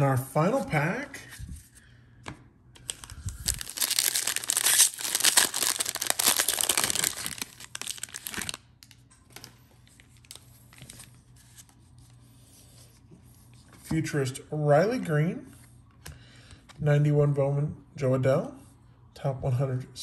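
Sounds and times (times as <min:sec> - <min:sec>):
plastic wrapper tearing and crinkling: 0:02.8 - 0:09.5
cards rustling: 0:02.8 - 0:11.8.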